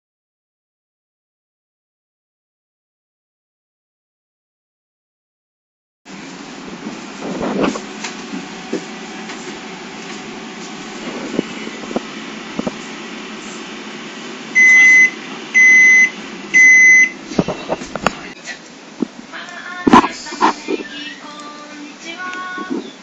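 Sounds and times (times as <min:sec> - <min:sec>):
microwave oven humming: 0:06.1 - 0:23.0
microwave beeping: 0:14.5 - 0:17.8.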